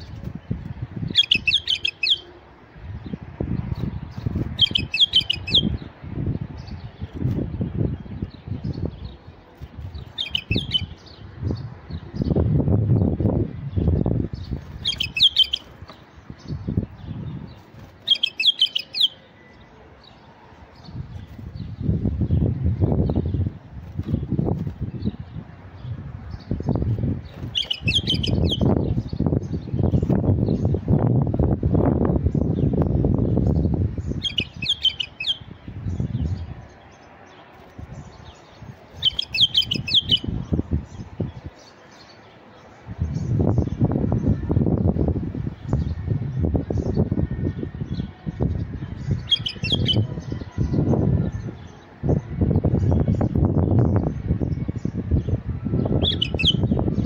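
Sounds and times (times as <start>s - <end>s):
bird singing falling notes: 1.1s - 2.3s, 14.4s - 16.5s, 17.1s - 19.6s, 26.7s - 30.4s, 39.0s - 40.5s
bird singing whistled notes: 1.1s - 2.3s, 4.6s - 5.8s, 10.1s - 11.3s, 14.8s - 15.7s, 18.0s - 19.7s, 27.4s - 30.6s, 33.6s - 36.4s, 39.0s - 41.2s, 47.9s - 57.0s.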